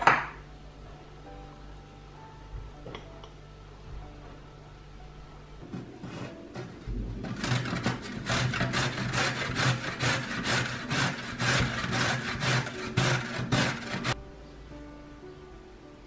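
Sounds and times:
carrot grating on metal grater: 0:07.2 - 0:14.2.

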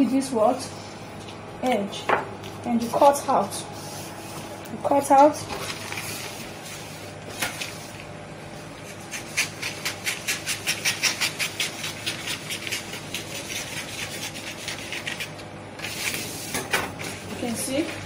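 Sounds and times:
scissors cutting paper: 0:08.8 - 0:16.3.

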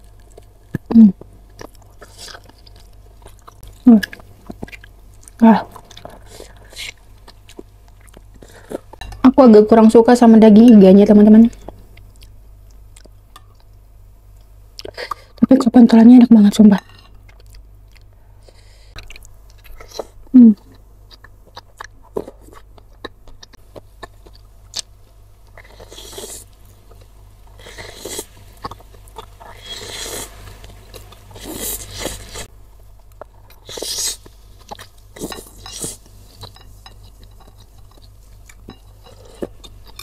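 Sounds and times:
chewing: 0:00.0 - 0:09.0, 0:17.1 - 0:32.5.

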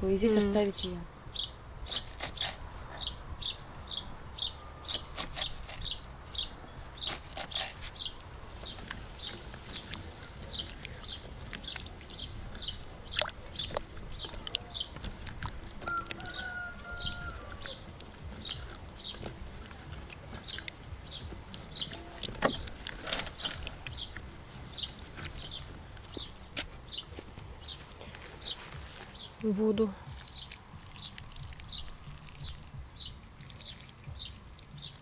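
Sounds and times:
songbird chirping: 0:00.0 - 0:35.0
low drawn-out bird call: 0:01.3 - 0:15.1, 0:15.8 - 0:19.4.

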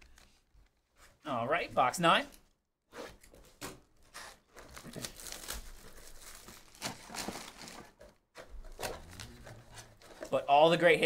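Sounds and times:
plastic wrap crinkling and tearing: 0:04.2 - 0:08.0.

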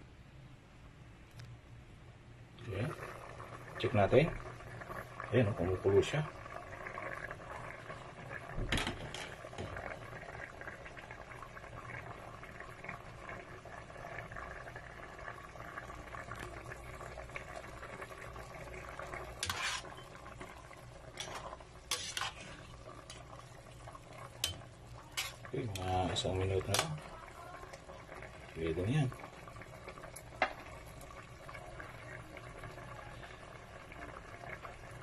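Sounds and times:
stew bubbling in pot: 0:02.5 - 0:35.0
ladle clinking against pot: 0:24.4 - 0:25.9.

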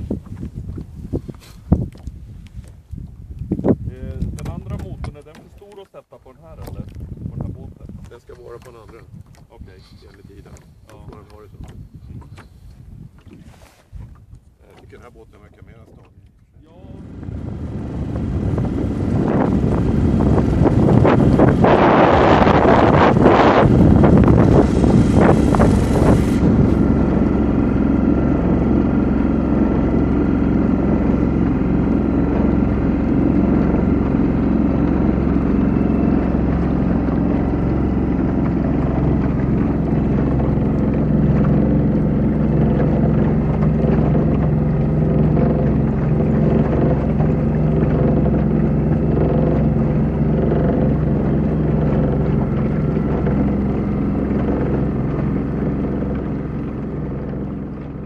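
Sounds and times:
outboard motor running: 0:00.0 - 0:58.0
wind buffeting microphone: 0:00.0 - 0:58.0.

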